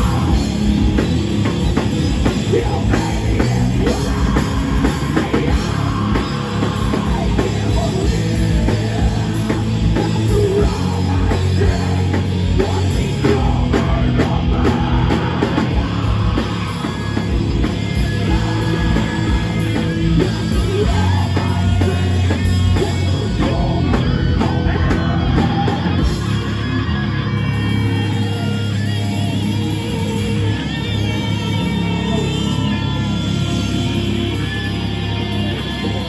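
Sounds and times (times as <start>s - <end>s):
drum kit pounding: 0.0s - 26.8s
electric guitars: 0.0s - 36.0s
person singing into a microphone: 2.3s - 26.5s.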